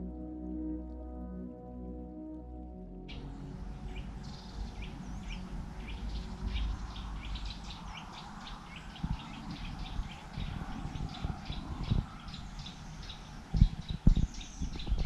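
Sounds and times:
background music: 0.0s - 13.5s
low wind rumble: 0.0s - 15.0s
small birds chirping: 3.1s - 15.0s.

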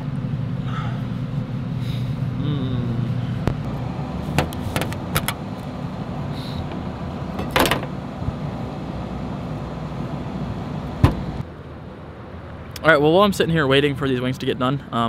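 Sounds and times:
steady low hum: 0.0s - 15.0s
loud rattle: 7.4s - 8.0s.

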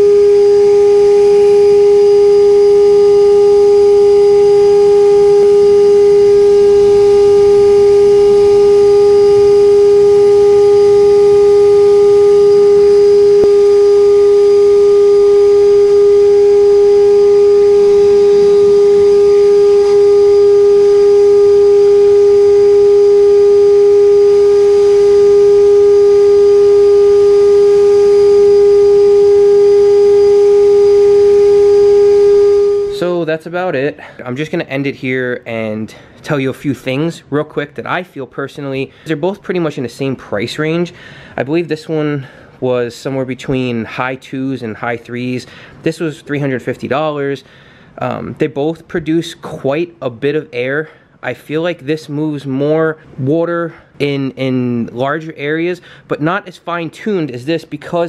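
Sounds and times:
leaf blower whining: 0.0s - 33.1s.

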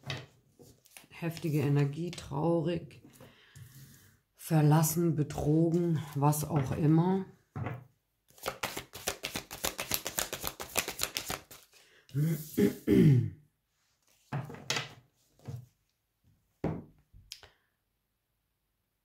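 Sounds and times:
cards shuffling: 8.3s - 11.8s.

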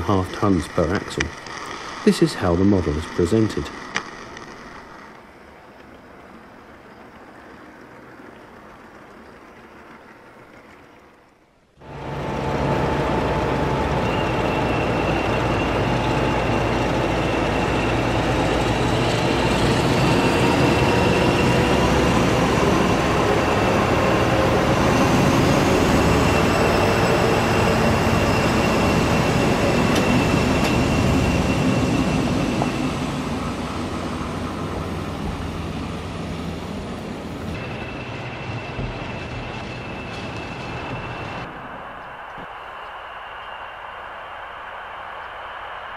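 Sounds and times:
diesel train engine: 0.0s - 45.9s
rail noise: 0.0s - 45.9s
high whine: 11.7s - 45.9s.

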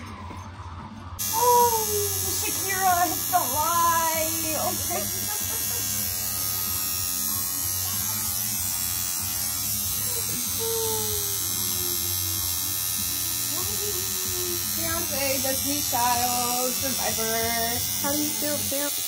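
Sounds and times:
tattoo machine buzzing: 1.2s - 19.0s.

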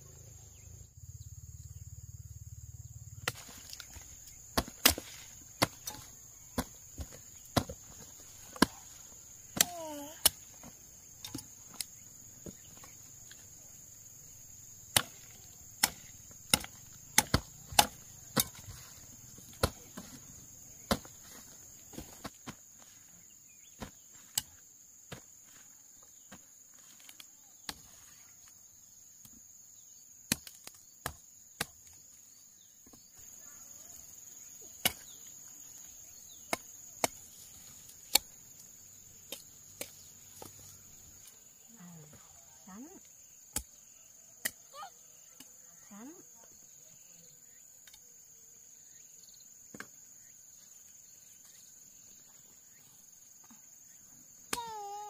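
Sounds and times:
machete chopping roots: 3.2s - 13.0s, 14.8s - 20.2s, 20.8s - 22.5s, 30.3s - 32.0s, 34.8s - 35.2s, 36.2s - 40.6s, 43.5s - 43.8s, 54.5s - 54.8s.

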